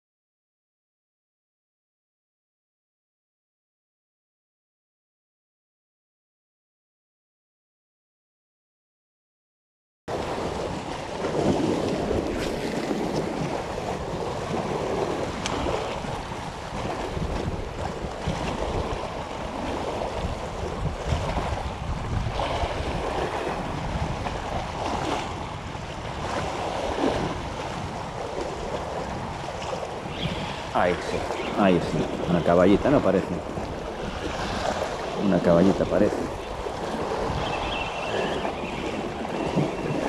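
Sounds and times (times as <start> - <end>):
sea water washing: 10.1 - 40.0
wind buffeting microphone: 10.1 - 40.0.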